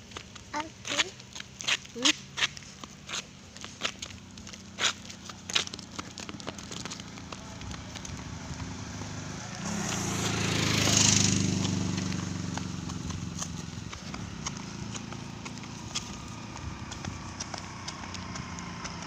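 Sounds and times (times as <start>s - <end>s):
footsteps: 0.0s - 19.0s
vehicle passing on road: 0.0s - 19.0s.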